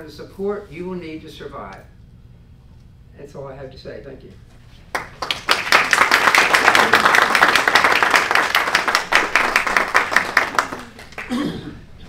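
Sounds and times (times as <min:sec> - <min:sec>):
audience applauding: 0:04.9 - 0:11.4.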